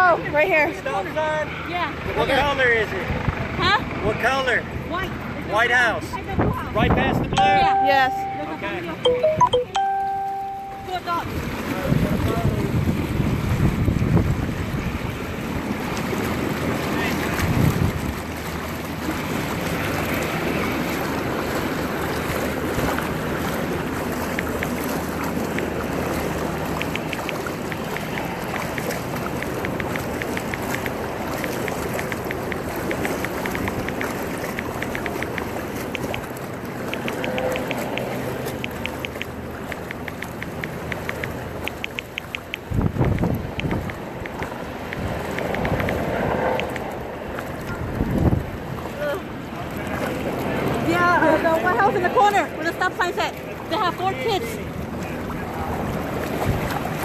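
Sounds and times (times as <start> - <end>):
water sloshing from people wading: 0.0 - 57.0
wind buffeting microphone: 11.2 - 38.1, 42.4 - 48.9
light rapid ticking: 26.7 - 46.9.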